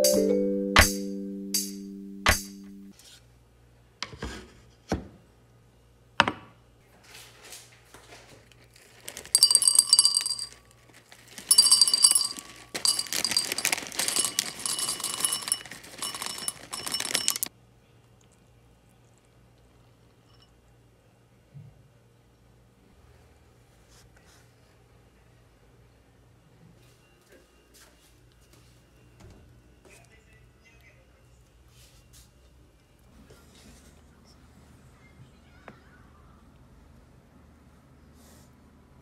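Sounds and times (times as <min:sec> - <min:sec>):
cereal clattering into glass jar: 0:08.7 - 0:17.5.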